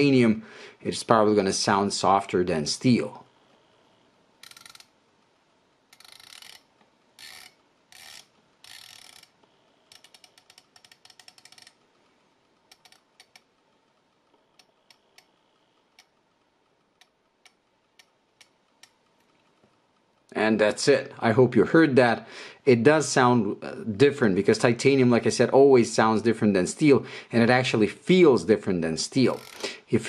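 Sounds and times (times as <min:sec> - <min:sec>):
watch bezel ratcheting clicks: 0:04.4 - 0:04.9, 0:05.9 - 0:11.8, 0:12.7 - 0:13.5, 0:29.3 - 0:29.6.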